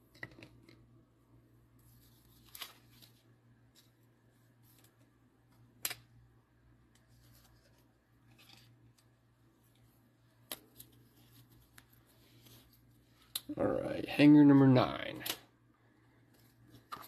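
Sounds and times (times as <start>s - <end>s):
faint steady hum: 0.0s - 17.0s
card packaging handling: 1.9s - 4.0s.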